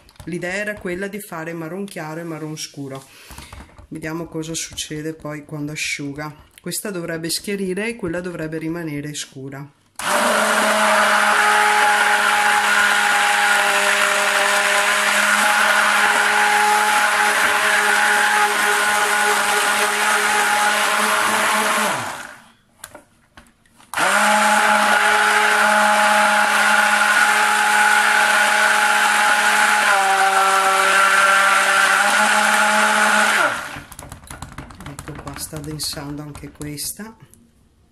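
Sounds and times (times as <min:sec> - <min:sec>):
stick blender running: 0:10.0 - 0:22.5, 0:23.9 - 0:35.6.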